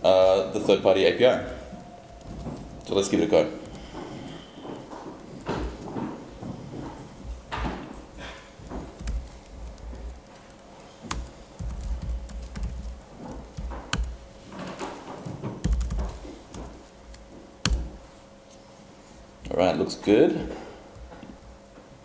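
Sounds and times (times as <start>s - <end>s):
laptop keyboard typing: 7.6s - 18.0s.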